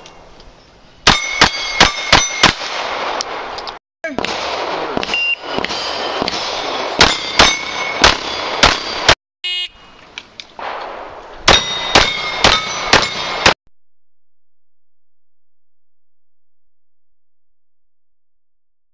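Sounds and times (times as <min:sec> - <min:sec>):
pistol shots: 0:01.1 - 0:09.2, 0:10.6 - 0:13.6
short electronic beep: 0:05.2 - 0:05.4.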